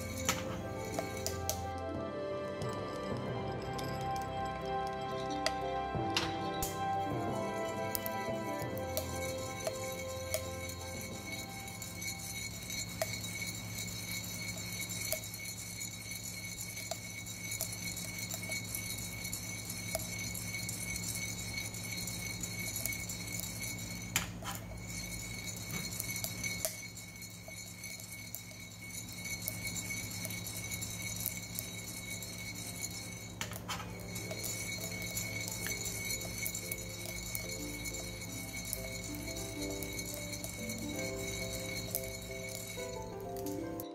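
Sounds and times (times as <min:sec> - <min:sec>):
coffee beans popping: 0:00.0 - 0:43.9
coffee beans rattling in roaster: 0:00.0 - 0:43.9.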